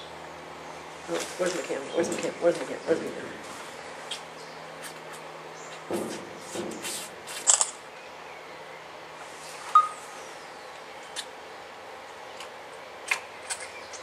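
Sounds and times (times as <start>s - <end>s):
rustles and clicks of handling: 1.0s - 7.8s
short electronic beep: 9.7s - 10.0s.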